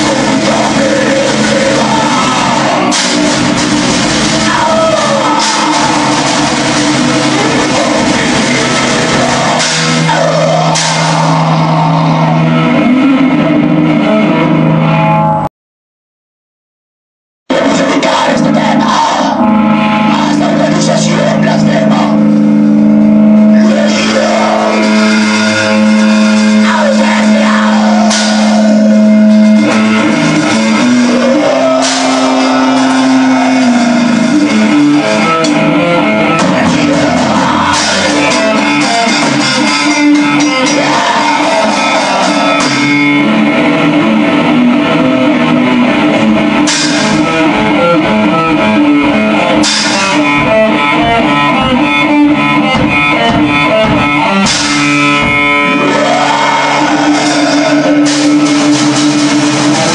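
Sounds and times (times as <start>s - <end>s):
black metal band playing: 0.0s - 15.5s, 17.5s - 59.9s
cymbal crash: 28.0s - 35.3s, 46.5s - 47.6s, 49.6s - 50.4s.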